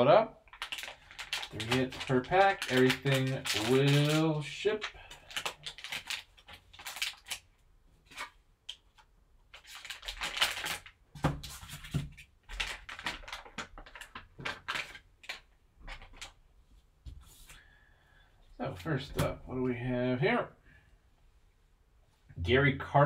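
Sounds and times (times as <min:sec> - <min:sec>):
foil pack crinkling: 0:00.5 - 0:08.4, 0:09.5 - 0:16.4.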